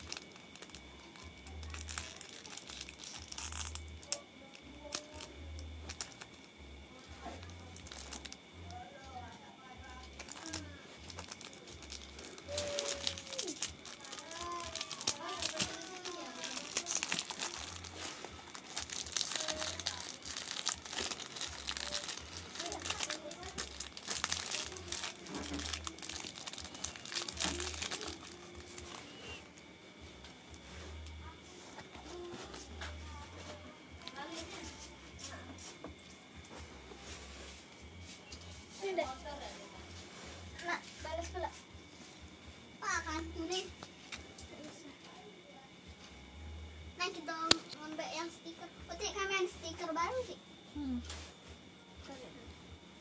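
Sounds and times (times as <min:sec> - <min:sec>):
plastic wrappers crinkling: 0:00.0 - 0:06.4, 0:07.3 - 0:08.8, 0:09.8 - 0:29.6.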